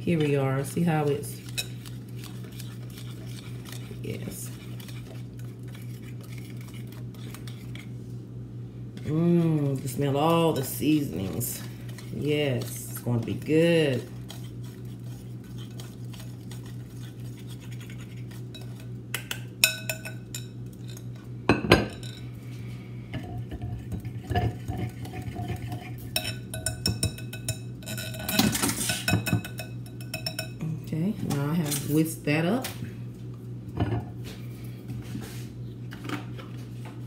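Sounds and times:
whisk clinking against glass bowl: 17.9 - 20.5, 23.9 - 30.6.

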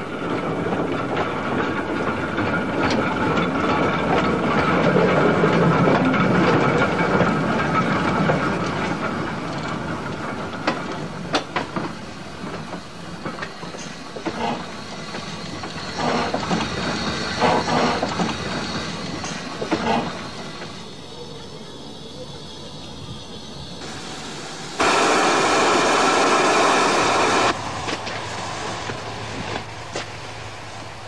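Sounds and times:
steam locomotive hiss: 10.6 - 31.0.

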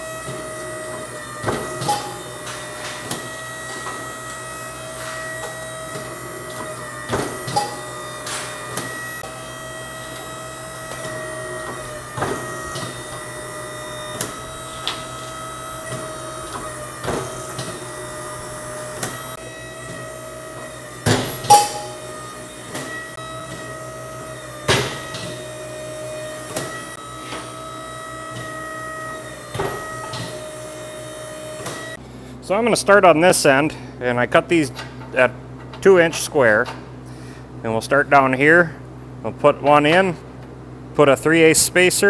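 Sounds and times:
motor humming: 0.0 - 32.3
shear cutting steel clack: 1.4 - 4.0, 21.0 - 23.6.

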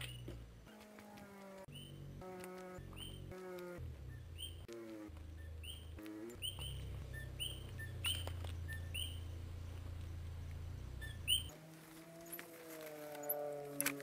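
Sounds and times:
steady low hum: 1.5 - 14.0
frogs chirping: 4.2 - 11.5.

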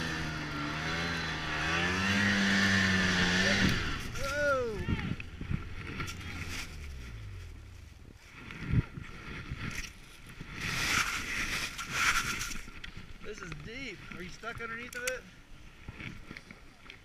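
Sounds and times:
snowmobile engine revving: 0.0 - 9.6.

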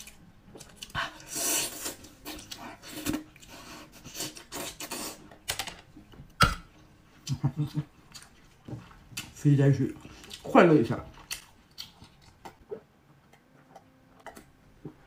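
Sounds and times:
wet chewing: 11.1 - 12.6.

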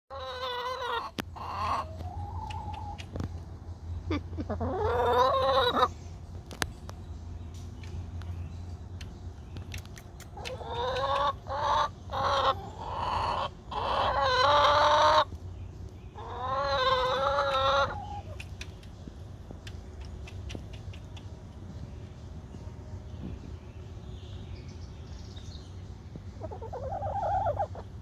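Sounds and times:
hens clucking: 0.1 - 6.7, 9.7 - 15.4, 16.1 - 21.6, 26.4 - 28.0.

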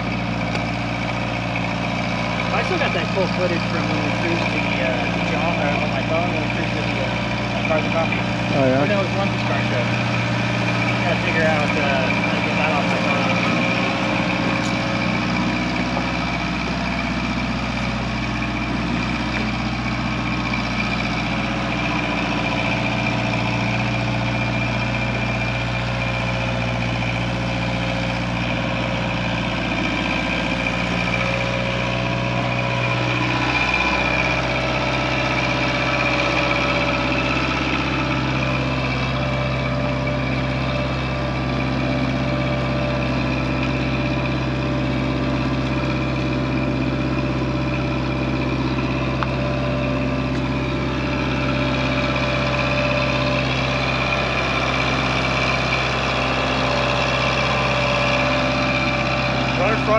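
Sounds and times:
forklift engine running: 0.0 - 59.9.

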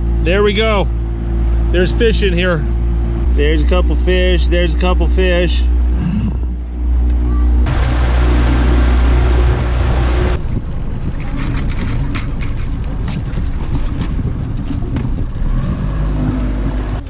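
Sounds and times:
boat motor running: 0.0 - 17.0
wind on microphone: 5.8 - 17.0
clicks and knocks of gear: 11.2 - 15.8.

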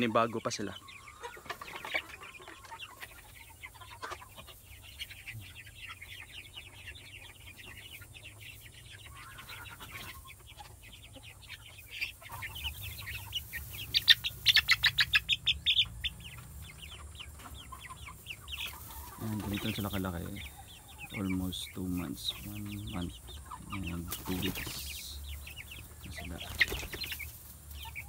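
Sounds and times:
chicks peeping and chirping: 0.0 - 28.0.

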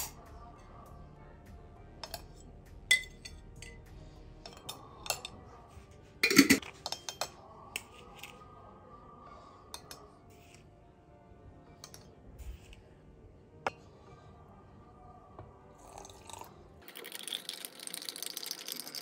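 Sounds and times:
metal spoon clinking on ceramic pot: 2.0 - 3.9, 4.5 - 5.4, 6.2 - 8.3.

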